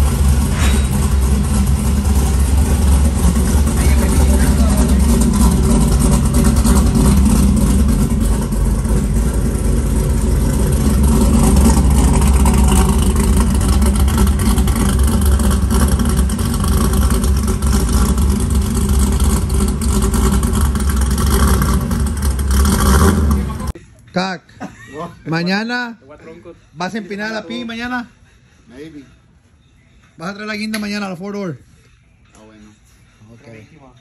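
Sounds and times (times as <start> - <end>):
pickup truck engine idling: 0.0 - 23.8.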